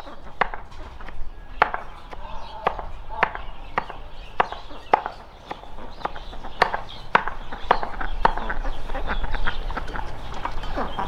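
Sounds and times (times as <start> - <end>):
chopping strokes: 0.0 - 8.5.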